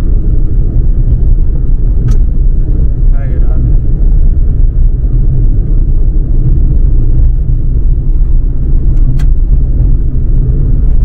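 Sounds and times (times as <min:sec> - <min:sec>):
tyres rumbling on dirt road: 0:00.0 - 0:11.0
sharp click: 0:02.0 - 0:02.3, 0:08.9 - 0:09.4.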